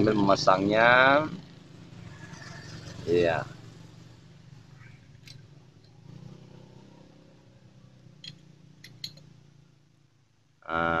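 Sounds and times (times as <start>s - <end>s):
light metallic clicks: 8.2s - 9.3s.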